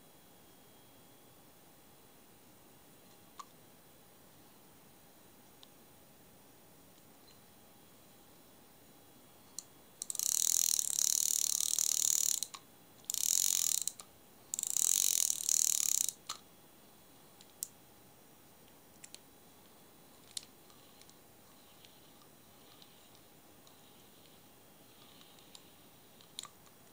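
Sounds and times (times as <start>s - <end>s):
fishing reel ratchet clicking: 10.0s - 16.2s.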